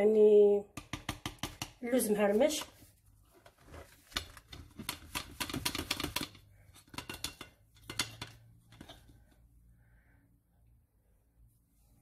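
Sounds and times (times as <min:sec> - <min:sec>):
spatula scraping metal cookware: 0:04.1 - 0:09.2.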